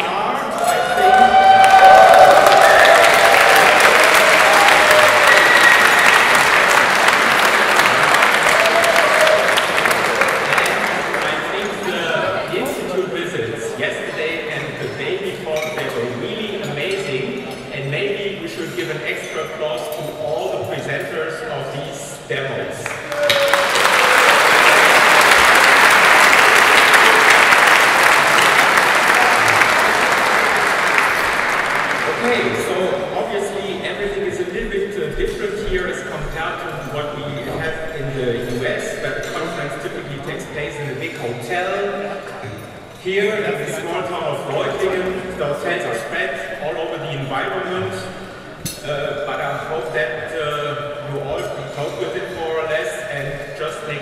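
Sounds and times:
audience applauding: 0.8 - 12.0, 22.8 - 32.7.

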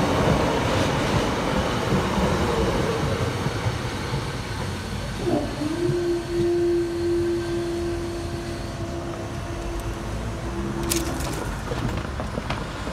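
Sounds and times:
barrier motor humming: 4.8 - 12.8.

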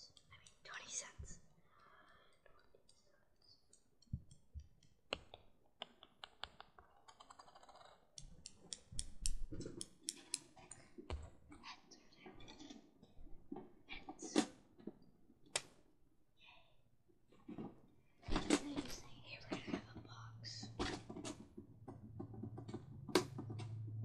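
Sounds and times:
sharp clicks and taps: 3.7 - 7.4, 8.2 - 11.2.

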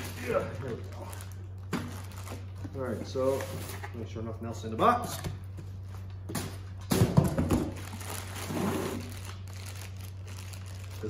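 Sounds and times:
plastic wrapping crinkling: 0.0 - 2.6, 7.6 - 11.0
steady low hum: 0.0 - 11.0.

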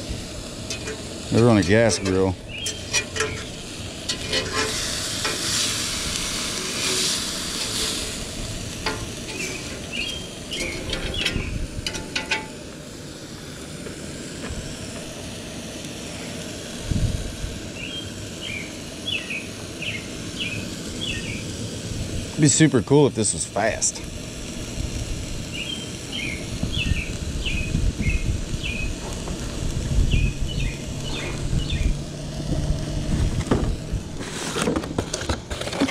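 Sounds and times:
burger patty sizzling on griddle: 0.0 - 35.9
metal spatula clicking on griddle: 0.7 - 1.1, 2.0 - 5.7, 10.5 - 12.6.

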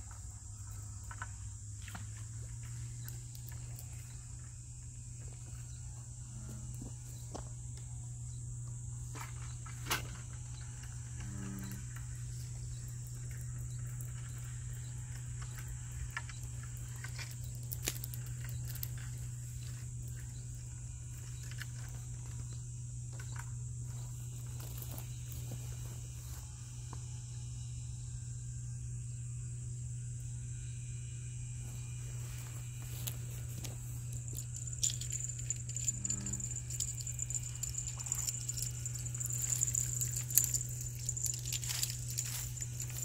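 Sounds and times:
high-pitched insect chorus: 0.0 - 43.0
low steady hum: 0.0 - 43.0.

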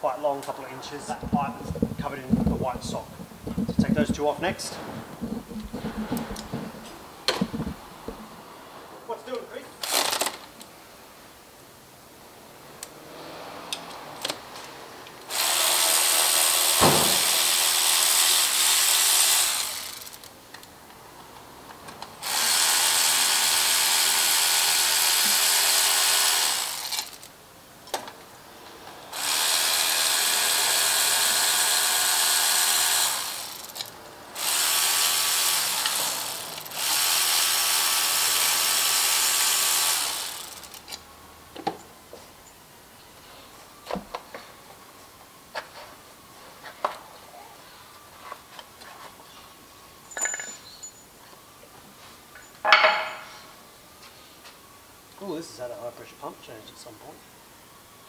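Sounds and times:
power tool running: 1.1 - 8.3, 15.3 - 20.3, 22.2 - 27.3, 29.1 - 33.8, 34.4 - 40.9.

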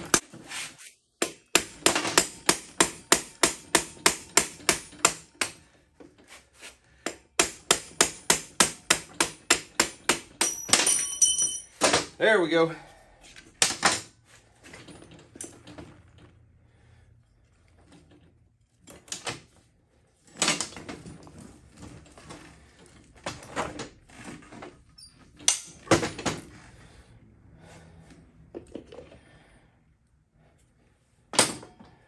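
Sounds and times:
chain rattling: 10.4 - 11.8
metal clanks and knocks: 25.3 - 26.5.

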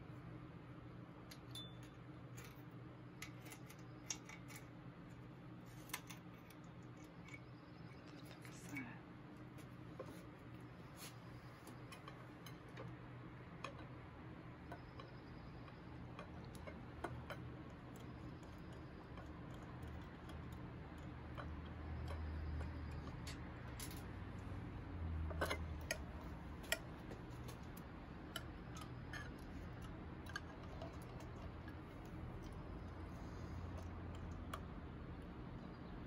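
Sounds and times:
low steady hum: 0.0 - 36.0
small metal parts clicking: 1.3 - 4.7, 5.7 - 7.5, 14.7 - 24.2.

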